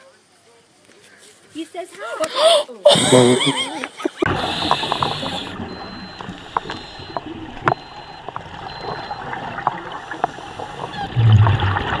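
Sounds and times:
underwater hiss: 4.3 - 5.7
rush of bubbles: 4.3 - 12.0.

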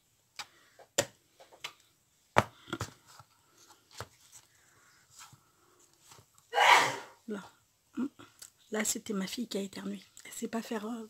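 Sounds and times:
knocks and clicks of cardboard and tools: 0.4 - 1.8.

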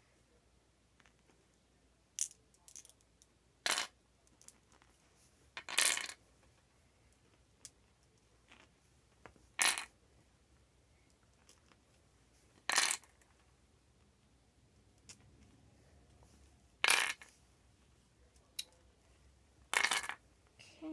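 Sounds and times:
glass stones clinking on wooden board: 5.6 - 6.2, 9.6 - 9.9, 12.7 - 13.1, 16.8 - 17.3, 19.7 - 20.2.

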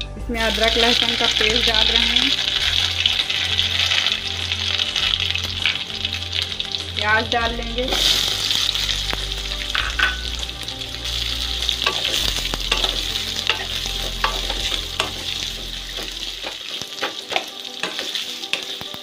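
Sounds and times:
onions sizzling in hot oil: 0.4 - 19.0.

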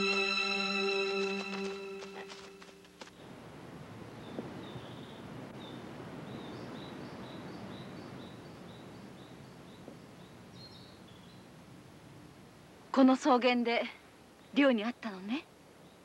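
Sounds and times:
steady noisy hiss: 0.0 - 16.0.

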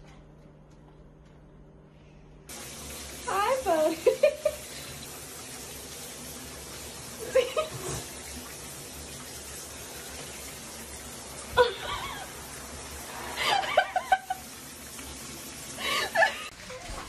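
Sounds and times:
shower spray into bathtub: 2.5 - 17.0
person laughing: 3.9 - 4.7, 7.2 - 8.0, 11.5 - 12.4, 13.4 - 14.5, 15.8 - 16.5.

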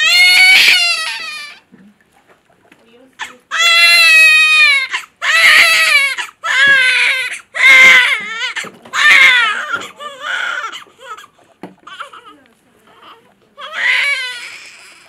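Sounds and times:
newborn baby crying: 0.0 - 1.6, 3.2 - 15.0.

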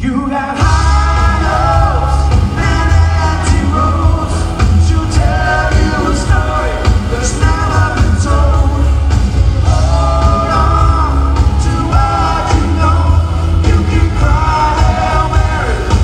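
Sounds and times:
person singing lead vocal: 0.0 - 16.0
rock band playing live: 0.1 - 16.0
heavy bass: 0.6 - 16.0.

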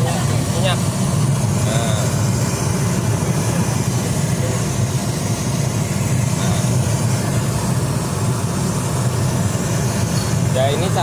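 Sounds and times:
gas burner rumbling: 0.0 - 11.0.

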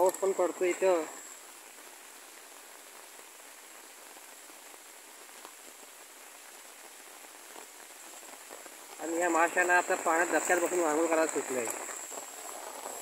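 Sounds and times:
drizzle hissing: 0.0 - 1.5, 9.0 - 13.0
raindrops ticking: 0.0 - 13.0.

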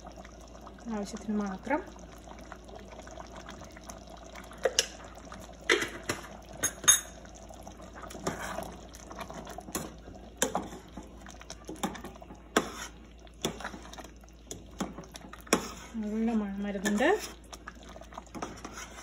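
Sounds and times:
ladle stirring thick stew: 7.8 - 19.0.

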